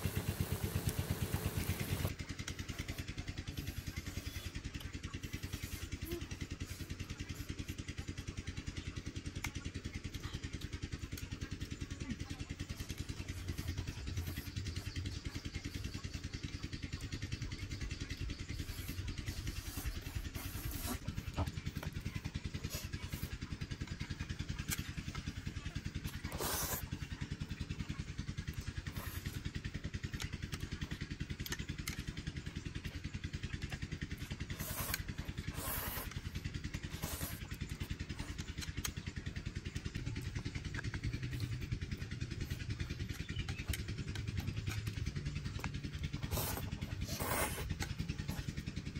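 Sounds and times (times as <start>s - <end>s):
small engine running: 0.0s - 48.9s
slurping noodles: 26.1s - 26.9s, 34.5s - 37.6s, 46.2s - 48.6s.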